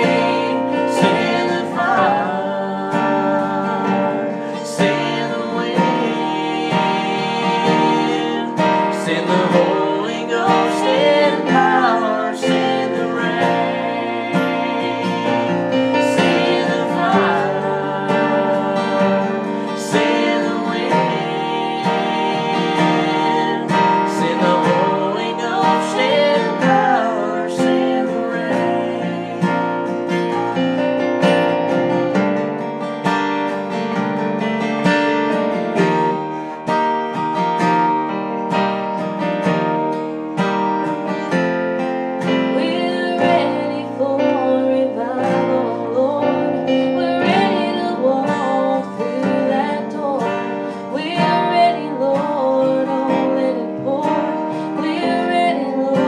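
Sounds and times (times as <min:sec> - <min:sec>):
man and woman singing: 0:00.0 - 0:30.8, 0:42.2 - 0:56.0
strummed acoustic guitar: 0:00.0 - 0:56.0.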